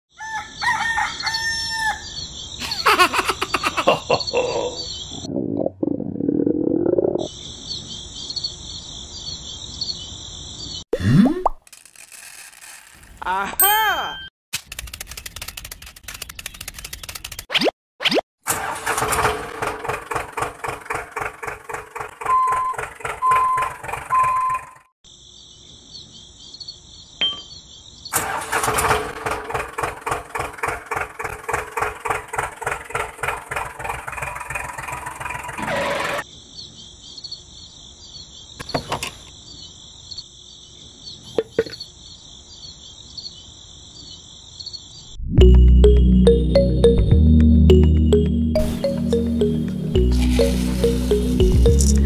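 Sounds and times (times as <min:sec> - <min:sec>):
tractor engine chugging: 0:18.6 - 0:24.2, 0:28.2 - 0:35.6
high-pitched chirring: 0:45.4 - 0:52.0.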